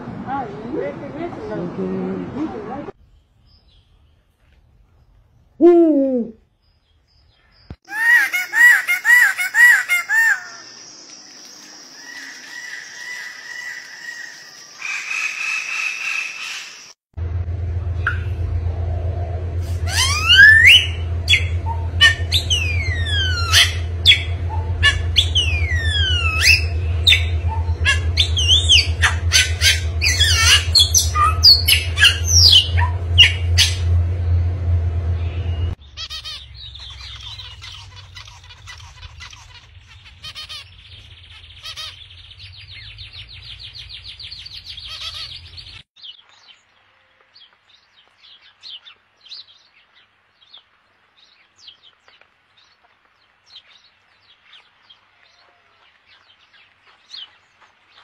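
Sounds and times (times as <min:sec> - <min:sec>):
steady low hum: 0:17.2 - 0:43.2
finch chirps with buzzy trill: 0:19.8 - 0:33.8, 0:35.6 - 0:45.8
myna whistled calls and squawks: 0:19.9 - 0:33.8.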